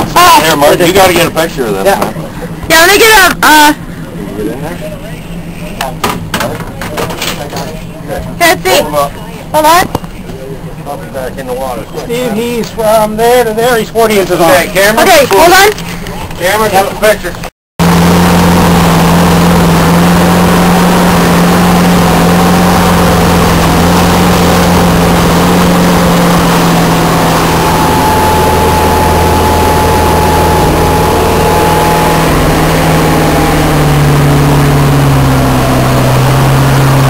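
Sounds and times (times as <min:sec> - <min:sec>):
motorboat engine running: 0:00.0 - 0:37.0
water rushing past hull: 0:17.8 - 0:37.0.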